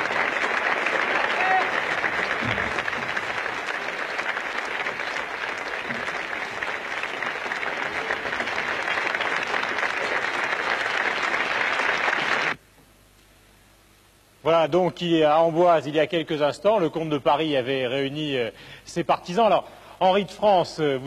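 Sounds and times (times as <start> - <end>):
large crowd applauding: 0.0 - 12.6.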